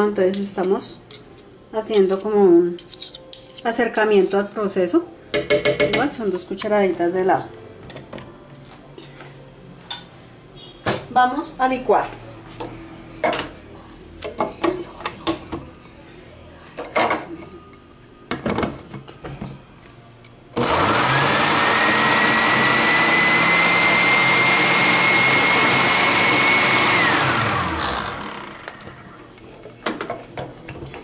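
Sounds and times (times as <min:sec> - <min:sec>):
blender motor whining: 0:20.6 - 0:29.2.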